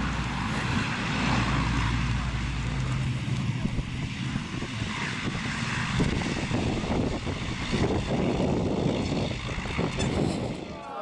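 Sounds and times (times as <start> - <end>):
propeller plane engine drone: 0.0 - 11.0
wind on microphone: 2.9 - 11.0.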